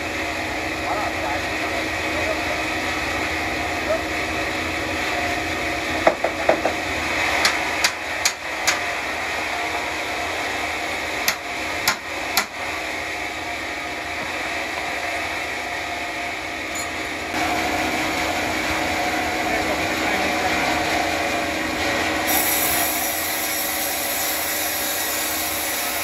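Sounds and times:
sawmill machinery running: 0.0s - 26.0s
sharp knocks: 6.0s - 6.8s.

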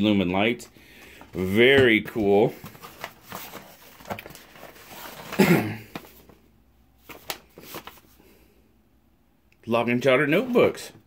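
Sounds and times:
cardboard and paper rustling: 1.0s - 6.4s, 7.0s - 8.2s.

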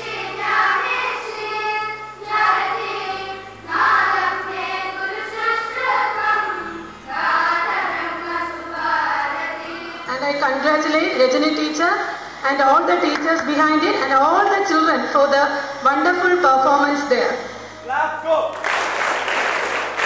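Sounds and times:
children singing a prayer: 0.0s - 10.1s
low accompanying notes: 0.0s - 20.0s.

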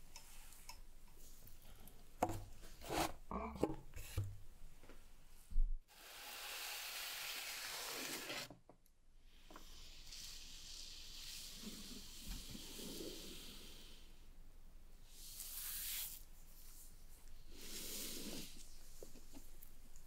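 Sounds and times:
steady hiss: 9.3s - 19.9s.

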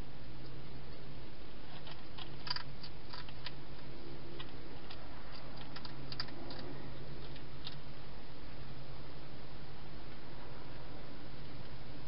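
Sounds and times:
steady low hum: 0.0s - 12.0s
hedgehog chewing clicks: 1.7s - 3.6s, 4.4s - 7.8s.

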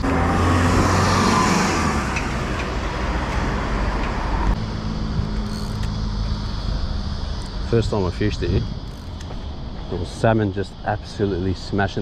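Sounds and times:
car passing close by: 0.0s - 5.2s
steady traffic noise: 0.0s - 12.0s.

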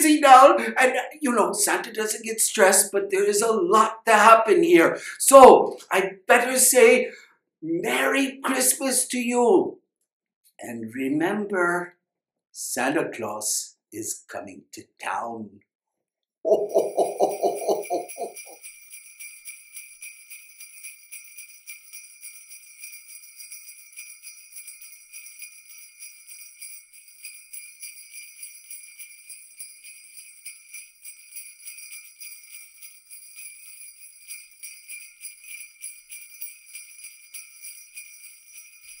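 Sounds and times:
sleigh bells jingling: 0.0s - 7.0s, 16.5s - 39.0s.

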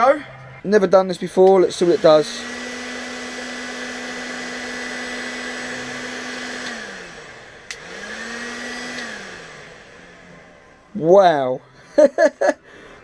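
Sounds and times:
heat gun fan whining: 1.0s - 12.5s
heat gun switch click: 7.6s - 7.9s.

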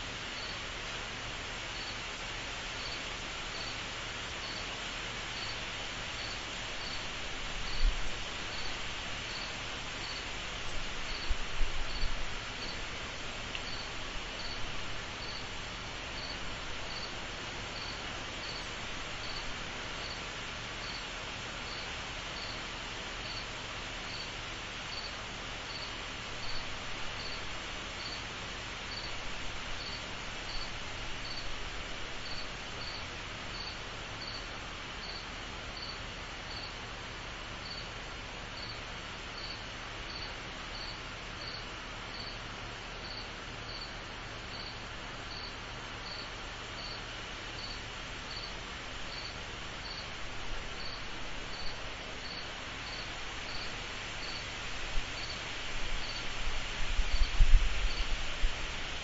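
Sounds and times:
insect chirping: 0.3s - 0.6s, 1.8s - 2.1s, 2.8s - 4.8s, 5.4s - 12.9s, 13.6s - 20.2s, 20.8s - 21.1s, 21.7s - 22.6s, 23.2s - 23.5s, 24.1s - 28.2s, 28.9s - 29.2s, 29.8s - 31.6s, 32.2s - 36.8s, 37.6s - 37.9s, 38.6s - 38.8s, 39.4s - 42.4s, 43.0s - 50.2s, 50.8s - 56.4s, 57.1s - 58.2s
insects trilling: 0.4s - 0.6s, 2.8s - 3.8s, 6.2s - 7.0s, 9.3s - 10.2s, 11.1s - 11.3s, 13.6s - 15.5s, 16.2s - 17.2s, 17.8s - 19.4s, 20.0s - 20.2s, 20.8s - 21.0s, 21.7s - 22.6s, 24.1s - 24.3s, 27.2s - 27.4s, 29.8s - 31.4s, 32.2s - 34.4s, 35.0s - 35.2s, 44.5s - 47.0s, 47.6s - 50.1s, 50.8s - 54.6s, 55.2s - 56.3s.

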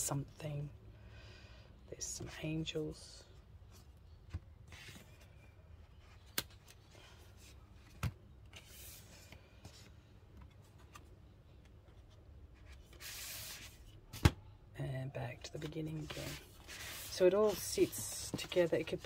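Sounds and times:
paper rustling: 15.6s - 19.0s.

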